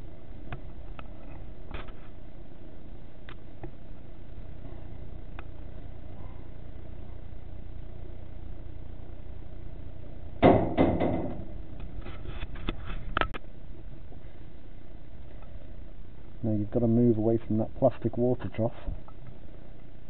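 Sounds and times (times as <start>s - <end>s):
sharp knocks: 10.4s - 11.5s.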